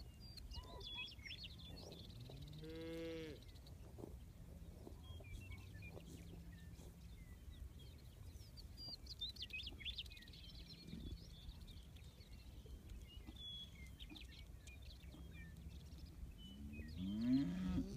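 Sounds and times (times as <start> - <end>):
birds whistling and chirping: 0.0 - 2.8, 5.0 - 17.9.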